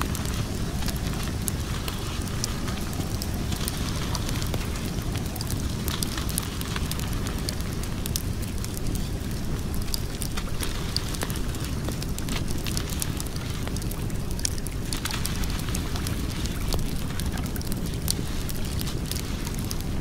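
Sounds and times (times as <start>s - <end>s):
steady low rumble: 0.0s - 20.0s
wood fire crackling and popping: 0.0s - 20.0s.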